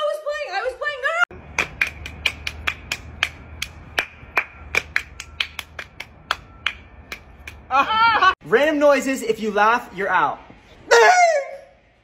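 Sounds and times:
sharp hand claps: 0:01.3 - 0:07.7.

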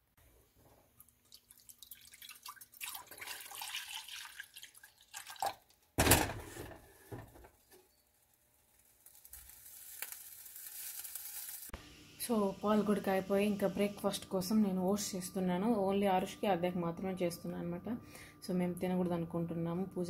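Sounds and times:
milk pouring into saucepan: 0:01.0 - 0:05.8.

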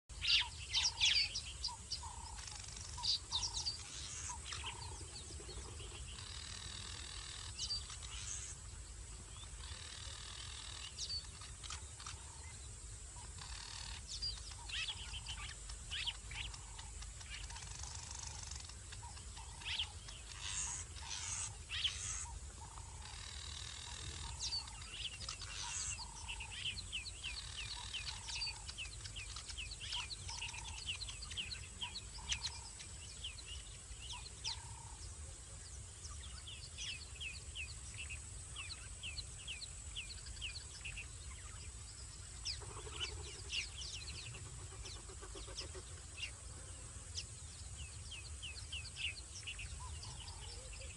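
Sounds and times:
low background noise: 0:00.1 - 0:50.9
trilling calls: 0:13.2 - 0:35.0.

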